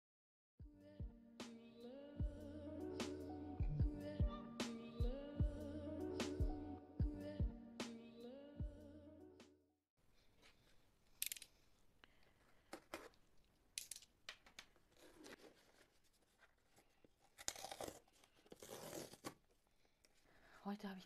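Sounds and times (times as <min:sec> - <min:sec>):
cardboard scraping and rubbing: 0:14.9 - 0:19.4.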